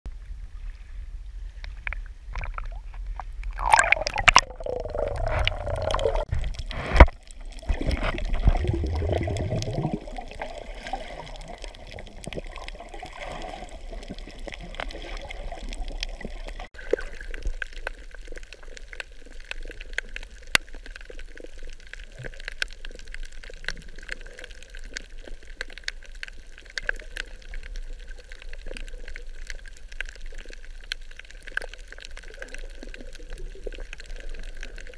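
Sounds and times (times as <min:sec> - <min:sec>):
water sloshing and gurgling: 0:00.1 - 0:26.7
sharp water splashes: 0:03.5 - 0:11.6
fine crackle of clicks: 0:04.2 - 0:34.9.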